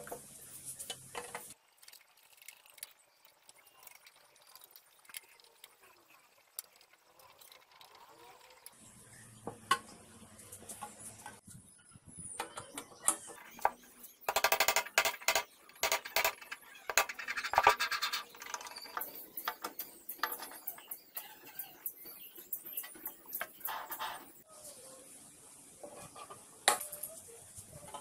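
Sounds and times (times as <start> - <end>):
metallic clicks and knocks: 12.4 - 21.4.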